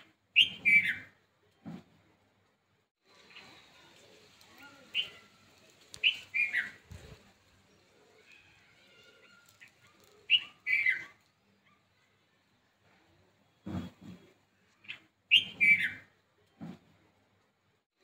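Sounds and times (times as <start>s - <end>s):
bird chirping: 0.0s - 1.2s, 5.9s - 12.8s, 14.6s - 16.2s.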